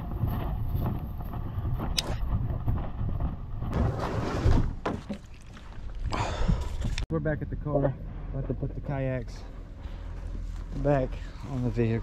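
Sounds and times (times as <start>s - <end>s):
wind buffeting microphone: 0.0s - 3.8s.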